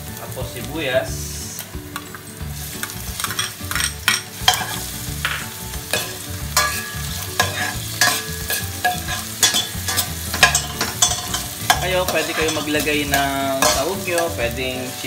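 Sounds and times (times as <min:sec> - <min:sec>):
onions sizzling in hot oil: 0:00.0 - 0:15.0
metal ladle scraping and clinking: 0:02.8 - 0:14.5.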